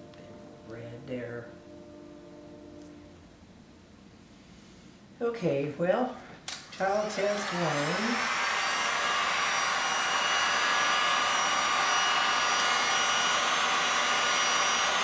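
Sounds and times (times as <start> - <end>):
heat gun blowing air: 6.5 - 15.0.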